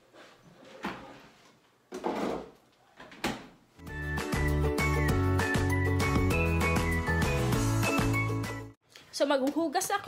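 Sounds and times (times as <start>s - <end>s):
music with steady beat: 3.8s - 8.7s.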